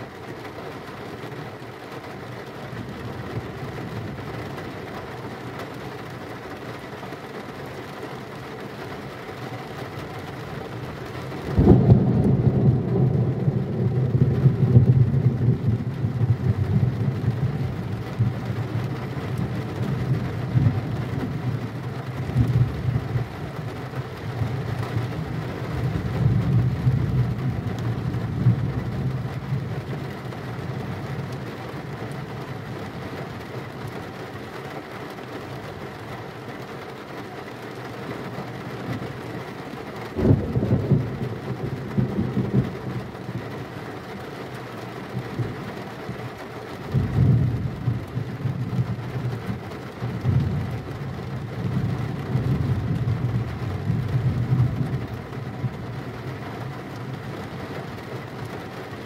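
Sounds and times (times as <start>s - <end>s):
steady rain: 0.0s - 59.0s
loud thunderclap: 11.5s - 17.3s, 40.2s - 41.3s
rolling thunder: 11.5s - 18.6s, 40.2s - 43.0s.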